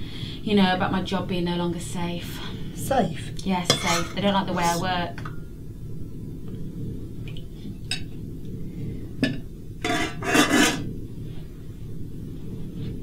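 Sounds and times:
low room hum: 0.0s - 13.0s
cutlery scraping a plate: 3.7s - 4.8s, 9.8s - 10.9s.

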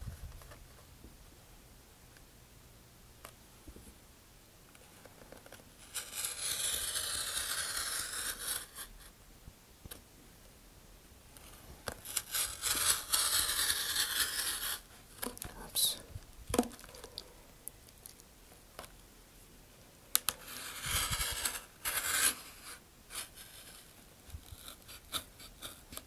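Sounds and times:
knife blade scraping paper tube: 5.8s - 8.9s, 12.0s - 14.9s, 20.3s - 23.9s.

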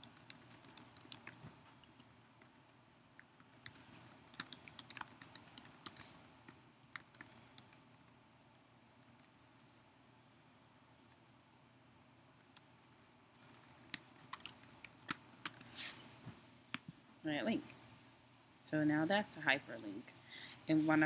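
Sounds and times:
faint keyboard typing: 0.0s - 9.7s, 12.4s - 15.8s.

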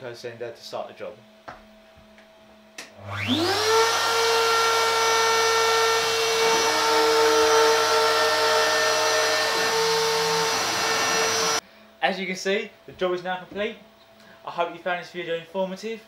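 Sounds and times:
router motor whine: 3.0s - 11.6s.

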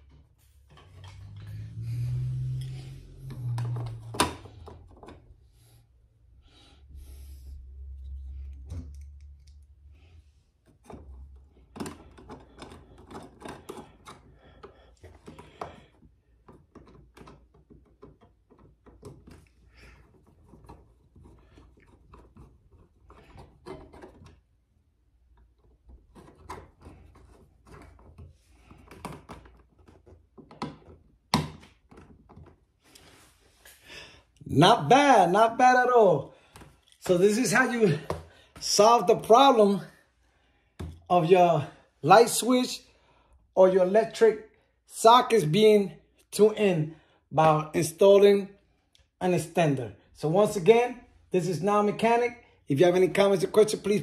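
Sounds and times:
screwdriver screwing: 10.8s - 24.5s.

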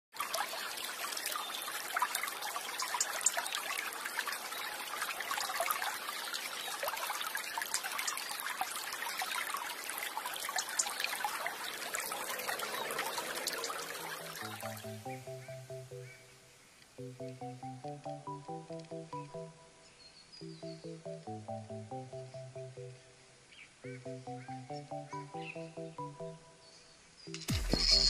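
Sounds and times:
water trickling and sloshing: 0.1s - 15.1s
small crackles and ticks: 2.8s - 3.6s, 7.4s - 8.8s, 16.7s - 19.2s.

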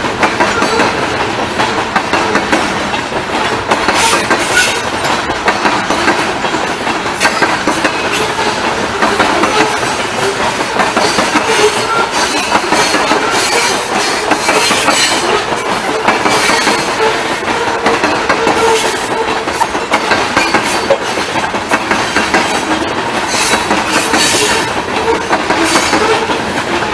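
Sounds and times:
freight train rumbling past: 0.0s - 26.9s
train wheels clicking over rail joints: 0.0s - 26.9s.

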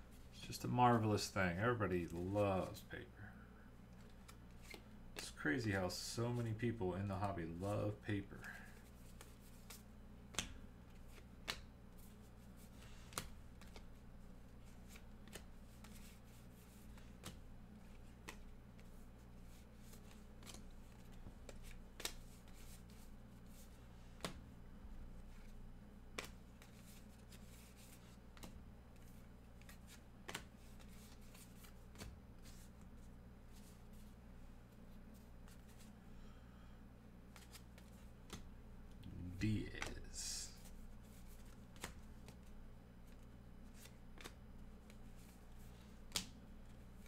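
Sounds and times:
low steady hum: 0.0s - 47.0s
cards sliding and snapping: 4.0s - 5.2s, 8.8s - 14.0s, 14.6s - 24.4s, 26.1s - 32.8s, 37.3s - 38.5s, 40.6s - 42.5s, 43.1s - 47.0s.

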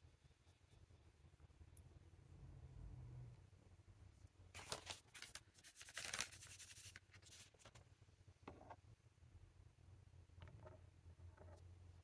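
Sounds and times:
hands rubbing brush and materials: 4.6s - 7.8s.

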